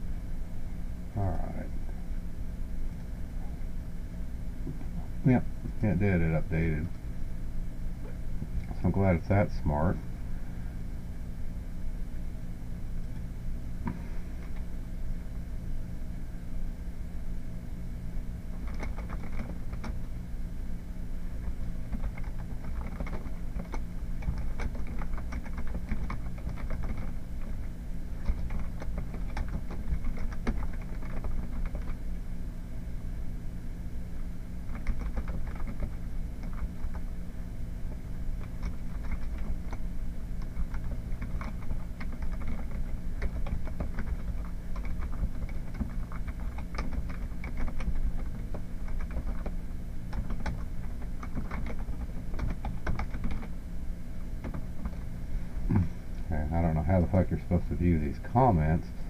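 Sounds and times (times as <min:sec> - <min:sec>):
steady low hum: 0:00.0 - 0:59.0
keyboard typing clicks: 0:18.6 - 0:20.0, 0:21.9 - 0:27.5, 0:28.2 - 0:32.0, 0:34.7 - 0:37.2, 0:38.4 - 0:39.8, 0:40.4 - 0:53.5.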